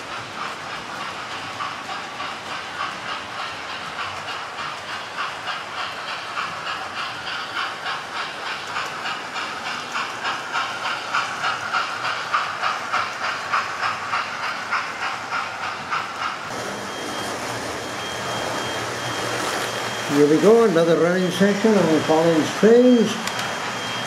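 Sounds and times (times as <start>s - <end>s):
model steam train chuffing: 0.0s - 24.0s
steady hum: 16.5s - 24.0s.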